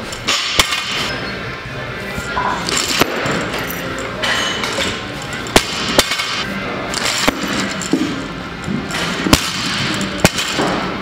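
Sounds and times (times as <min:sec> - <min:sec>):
gym background noise: 0:00.0 - 0:11.0.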